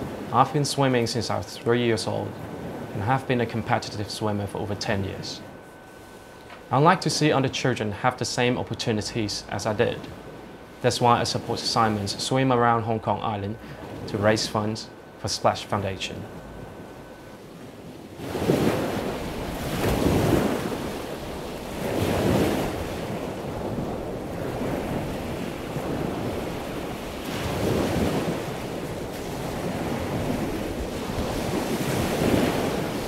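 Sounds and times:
ocean waves washing in: 0.0 - 33.0.

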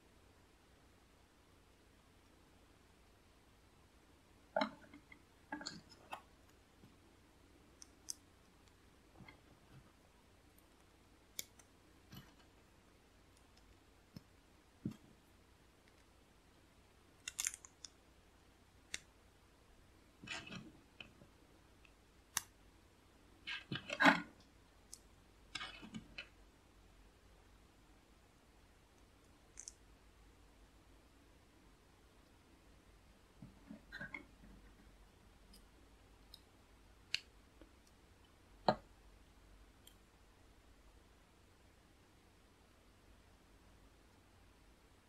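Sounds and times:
plastic bricks clicking: 29.6 - 29.8.

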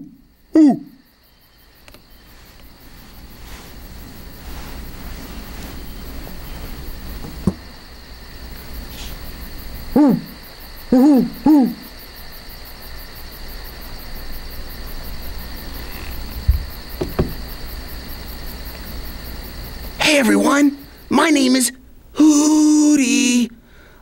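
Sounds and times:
faint insect chirr: 0.0 - 24.0
soft knocks: 7.2 - 7.7, 16.0 - 17.7
owl hooting: 9.9 - 12.0.

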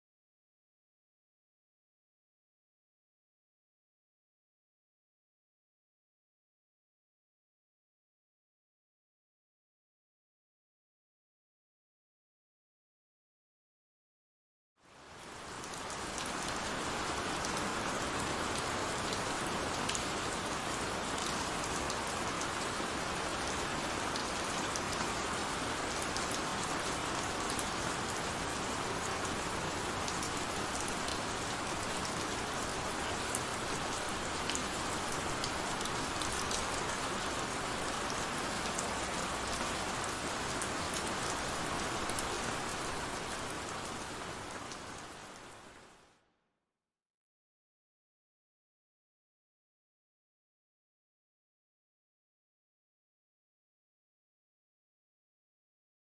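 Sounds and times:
heavy rain falling: 14.8 - 45.9.

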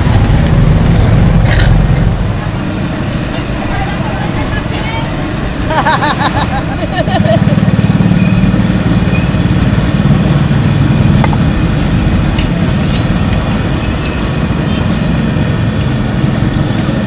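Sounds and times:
small engine idling: 0.0 - 12.7.

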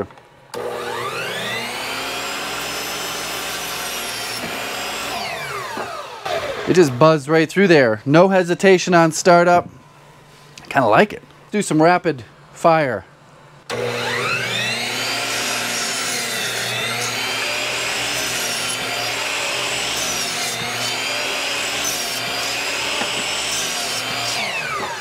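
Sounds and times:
miter saw cutting wood: 0.6 - 7.2, 13.7 - 25.0.

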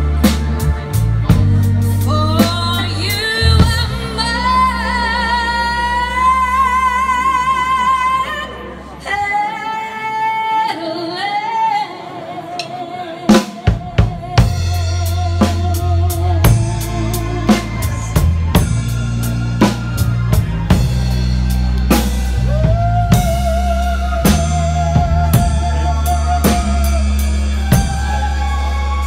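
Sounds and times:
live band playing: 0.0 - 11.0, 12.0 - 29.0
woman singing with vibrato: 2.0 - 18.4, 22.5 - 29.0.

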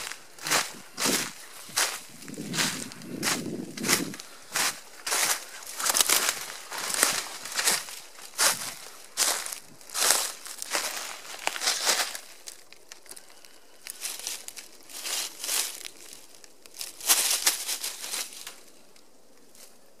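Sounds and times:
dry leaves crunching: 0.0 - 18.8.

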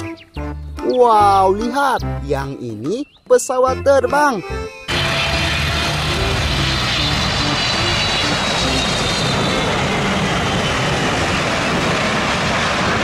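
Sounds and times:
jet engines roaring with whine: 4.9 - 13.0.

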